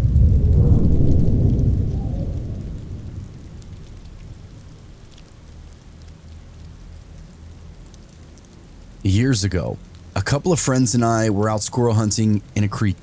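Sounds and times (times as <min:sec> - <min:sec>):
thunder rumbling: 0:00.0 - 0:06.1
faint rain patter: 0:00.0 - 0:13.0.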